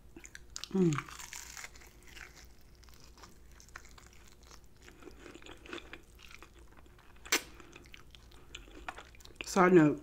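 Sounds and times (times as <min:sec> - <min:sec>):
chewing fried chicken: 0:00.2 - 0:09.7.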